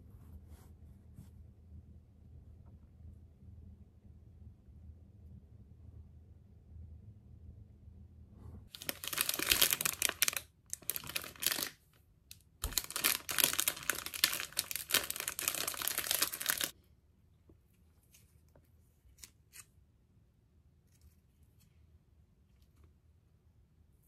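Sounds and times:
plastic wrapper crinkling and tearing: 0:08.7 - 0:11.8, 0:12.6 - 0:16.7.

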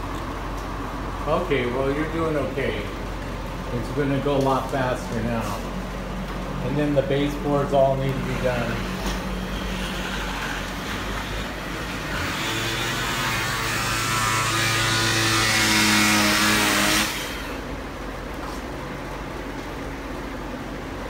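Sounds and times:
power scraper on wood: 0:08.2 - 0:17.6.

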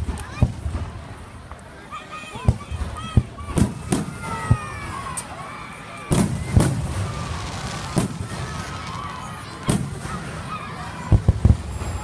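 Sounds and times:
fireworks booming: 0:00.0 - 0:01.3, 0:02.4 - 0:05.1, 0:06.1 - 0:12.0.

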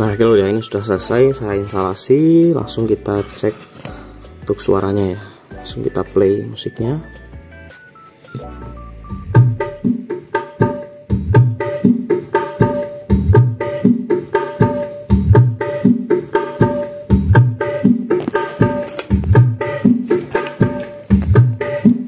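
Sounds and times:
music with fast drum beat: 0:03.9 - 0:22.0.

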